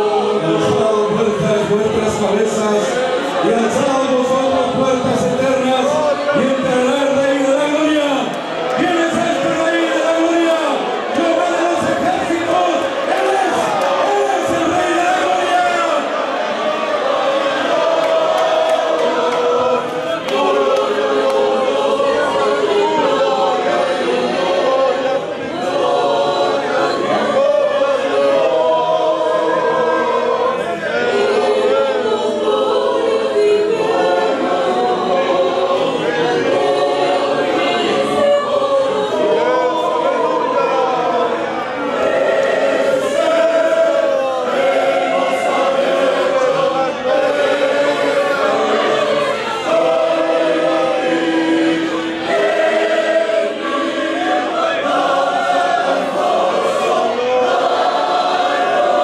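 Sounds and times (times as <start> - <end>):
mixed choir singing a hymn: 0.0 - 59.0.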